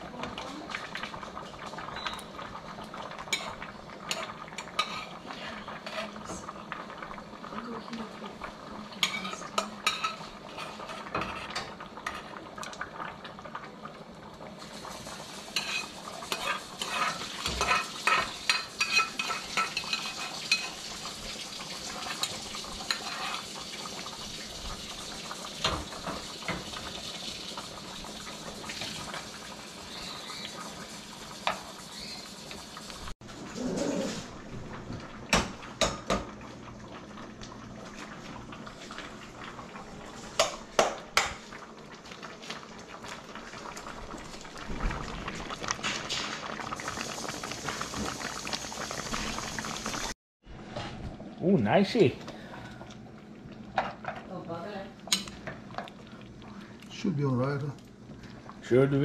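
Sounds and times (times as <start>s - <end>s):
metal spoon clinking against pots: 15.6s - 20.7s.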